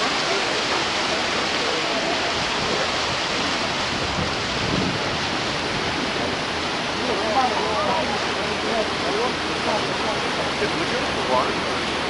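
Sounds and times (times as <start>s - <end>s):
wind rushing over microphone: 0.0s - 7.1s
water along moving boat: 0.0s - 12.0s.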